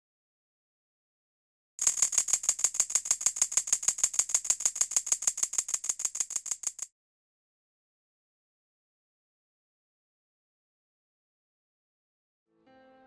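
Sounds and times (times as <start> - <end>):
split-flap display clicking: 1.8 - 6.9.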